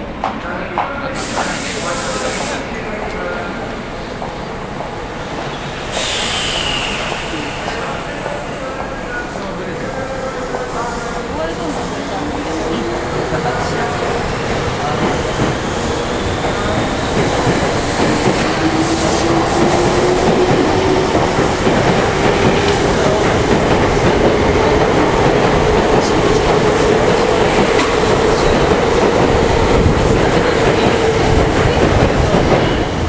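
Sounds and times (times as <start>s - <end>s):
train rumble: 0.0s - 33.0s.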